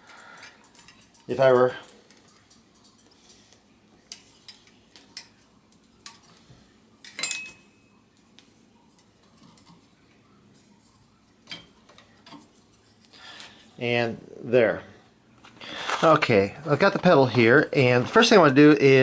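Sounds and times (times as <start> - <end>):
ringing metal clink: 7.0 - 7.9.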